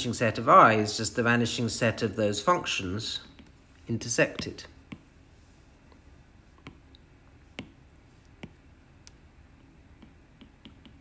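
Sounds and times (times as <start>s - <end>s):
low steady hiss: 0.0s - 11.0s
stylus tapping on glass screen: 4.3s - 5.1s, 6.6s - 8.6s, 10.0s - 11.0s.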